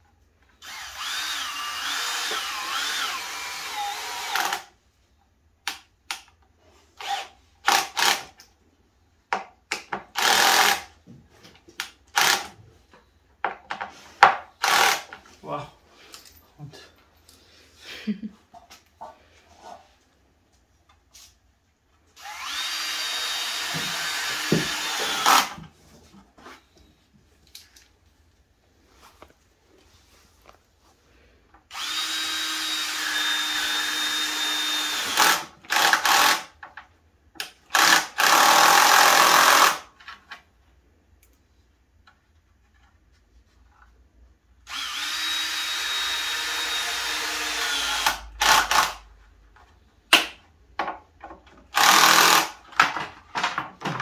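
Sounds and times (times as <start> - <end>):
drill-driver whine driving screws: 0.6 - 4.7, 10.2 - 10.9, 12.1 - 12.5, 14.6 - 15.1, 22.2 - 25.6, 31.7 - 36.5, 37.7 - 39.8, 44.7 - 49.0, 51.7 - 52.6.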